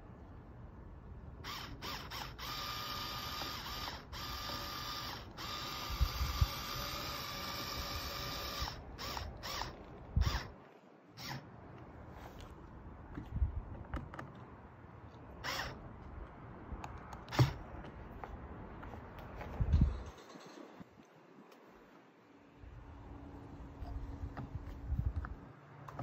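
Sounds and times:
electric screwdriver motor whining: 0:01.4 - 0:10.5, 0:11.2 - 0:11.4, 0:15.4 - 0:15.8.

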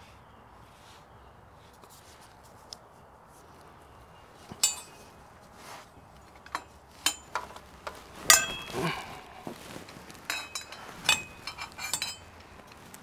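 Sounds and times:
metal-on-metal clinks: 0:04.5 - 0:05.1, 0:06.4 - 0:09.1, 0:10.3 - 0:12.8.

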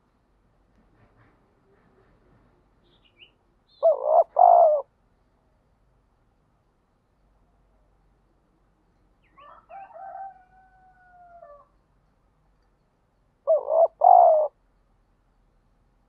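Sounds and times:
dove cooing: 0:03.8 - 0:04.9, 0:13.5 - 0:14.6.

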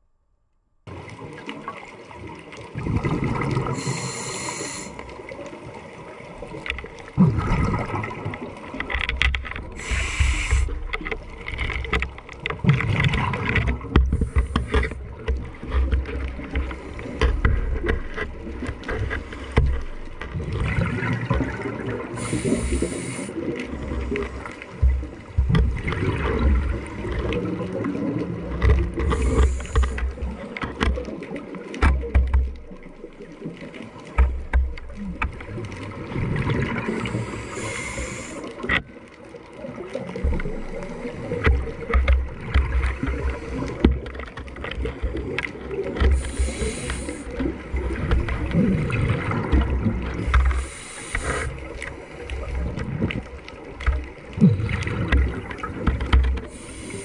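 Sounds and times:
regulator inhale hiss: 0:03.7 - 0:05.2, 0:09.7 - 0:10.8, 0:22.2 - 0:23.5, 0:29.0 - 0:30.1, 0:37.0 - 0:38.7, 0:46.1 - 0:47.5, 0:50.2 - 0:52.4, 0:56.4 - 0:57.0
gurgling exhaust bubbles: 0:07.0 - 0:08.6, 0:44.8 - 0:57.0.

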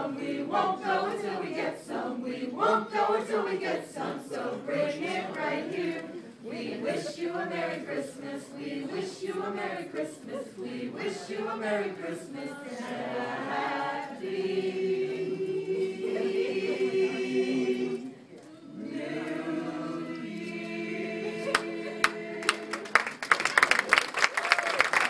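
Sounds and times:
group singing unaccompanied: 0:00.0 - 0:23.1
applause: 0:21.5 - 0:25.0.

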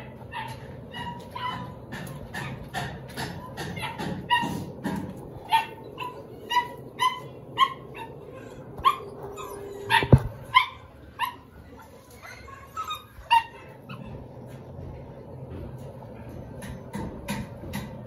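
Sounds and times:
dog barking: 0:05.4 - 0:08.2.

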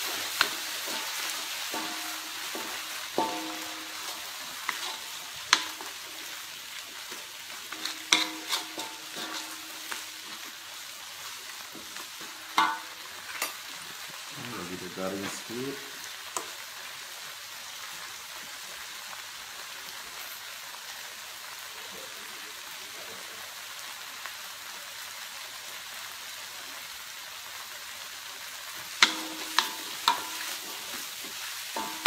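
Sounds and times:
wooden spatula scraping wok: 0:00.0 - 0:06.4, 0:07.0 - 0:10.6, 0:29.0 - 0:32.0
paste sizzling in oil: 0:00.0 - 0:32.0.

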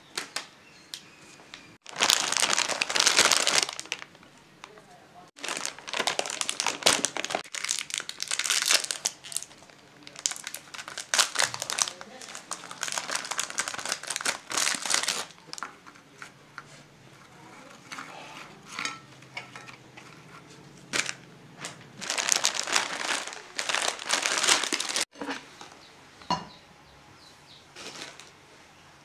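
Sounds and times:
plastic biscuit packet crinkling: 0:01.8 - 0:04.8, 0:05.4 - 0:16.0, 0:20.9 - 0:25.2, 0:27.8 - 0:28.3.

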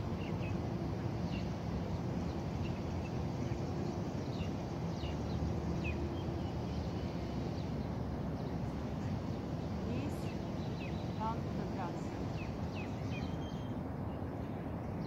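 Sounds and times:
bird chirps: 0:12.0 - 0:13.8.

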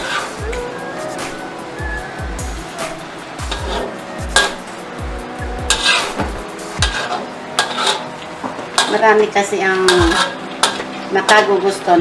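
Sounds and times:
spatula scraping a wok: 0:00.0 - 0:00.4, 0:03.4 - 0:04.7, 0:05.7 - 0:09.0, 0:09.9 - 0:11.5.

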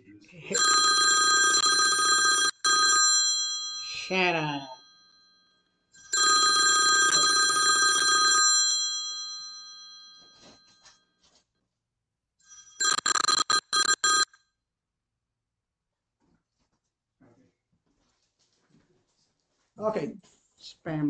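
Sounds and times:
phone ringing: 0:00.4 - 0:11.0, 0:12.4 - 0:14.4.

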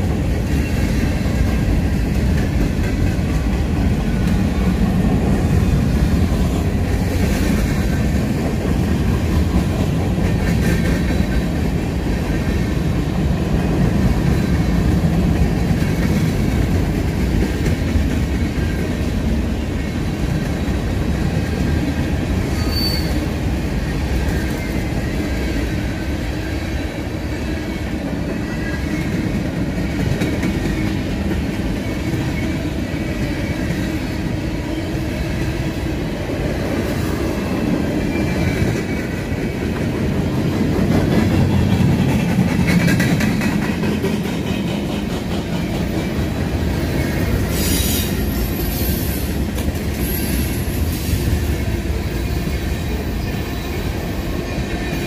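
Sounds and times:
steel wheels rumbling on rail: 0:00.0 - 0:55.0
wheels squealing against rail: 0:22.4 - 0:25.8, 0:36.9 - 0:39.4, 0:45.5 - 0:55.0.

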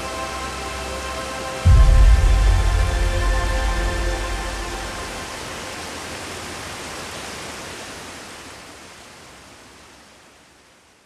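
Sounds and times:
rushing water hiss: 0:00.0 - 0:11.0.

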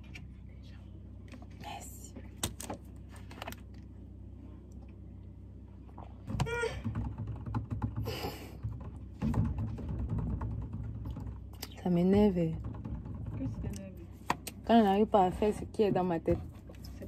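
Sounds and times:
handling thumps and knocks: 0:06.2 - 0:14.4.

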